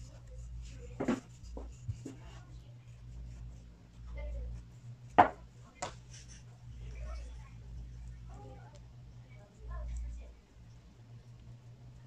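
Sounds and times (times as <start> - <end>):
brushing on wooden table: 0.0 - 6.5
steady low hum: 0.0 - 12.0
sharp knock on wood: 5.2 - 5.4.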